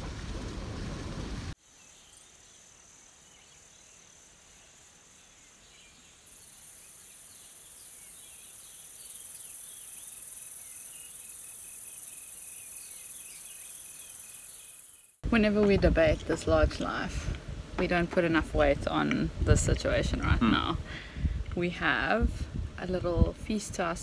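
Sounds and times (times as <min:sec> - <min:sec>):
bird chirps: 0:05.2 - 0:15.2
high-pitched insect drone: 0:06.3 - 0:15.2
wind rushing over microphone: 0:15.3 - 0:24.0.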